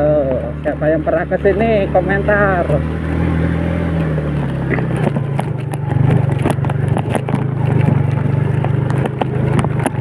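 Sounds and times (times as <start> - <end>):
small motorcycle engine pulling: 2.0 - 10.0
clicks and rattles: 4.9 - 10.0.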